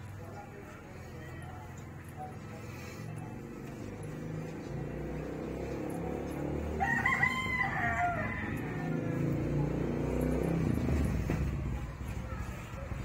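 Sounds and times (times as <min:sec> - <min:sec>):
rooster crowing: 0:06.6 - 0:09.6.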